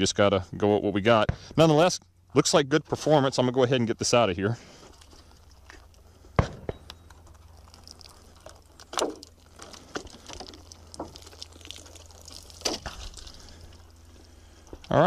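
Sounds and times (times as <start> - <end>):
water splashing: 9.2 - 13.7.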